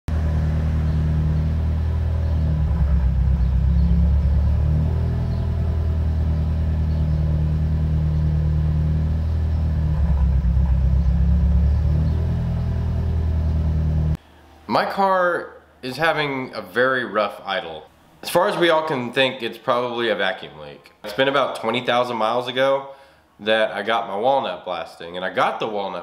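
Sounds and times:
car engine idling roughly: 0:00.8 - 0:14.1.

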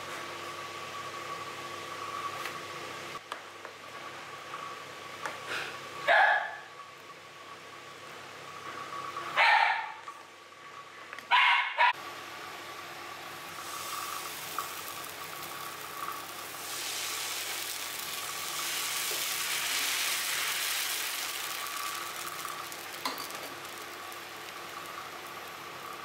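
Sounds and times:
batter sizzling on a hot pan: 0:13.3 - 0:26.0.

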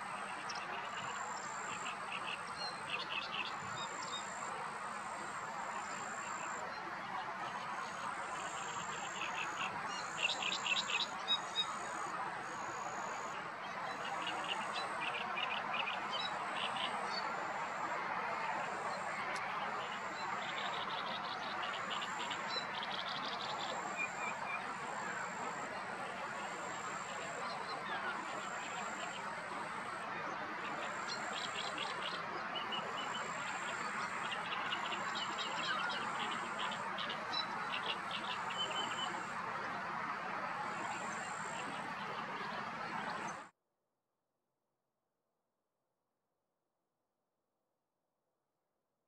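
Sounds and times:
small birds chirping and trilling: 0:07.8 - 0:17.6, 0:18.6 - 0:40.1.

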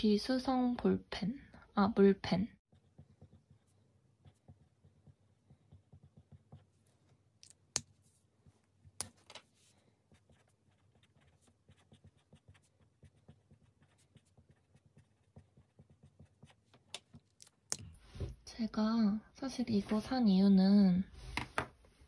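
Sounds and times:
pen scratching on paper: 0:02.7 - 0:07.1, 0:10.1 - 0:17.3.

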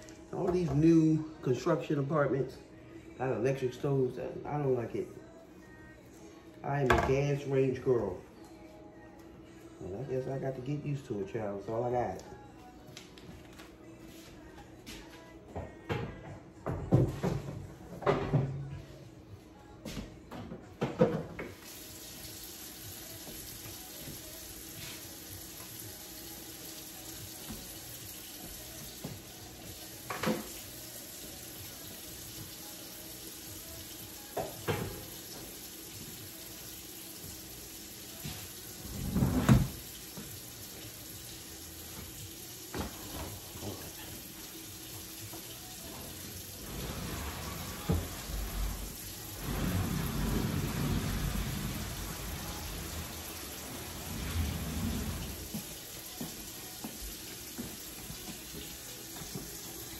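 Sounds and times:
water running from a tap: 0:21.6 - 0:59.9.

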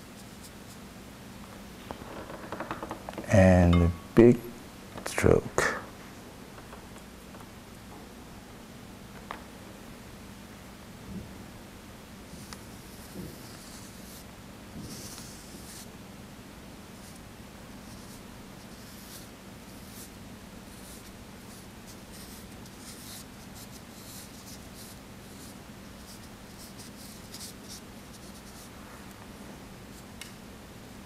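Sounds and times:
steady low hum: 0:00.0 - 0:31.0
ink brush scratching on paper: 0:12.3 - 0:14.2, 0:14.9 - 0:15.9, 0:17.8 - 0:20.1, 0:20.7 - 0:28.7.

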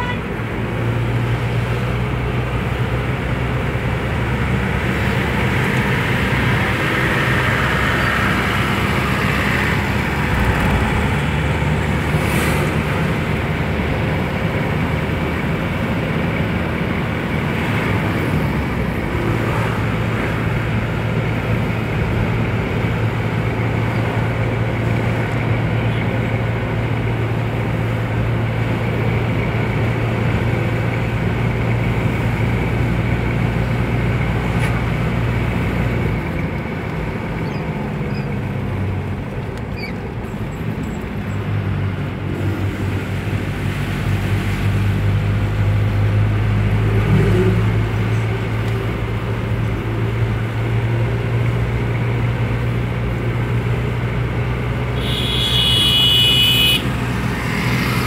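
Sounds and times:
car engine and tyre hum: 0:00.0 - 0:58.0.

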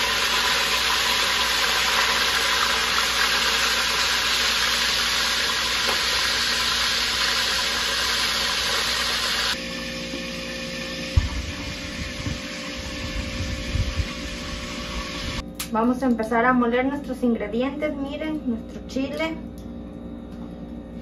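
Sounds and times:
fish frying in hot oil: 0:00.0 - 0:09.6, 0:11.3 - 0:15.4.

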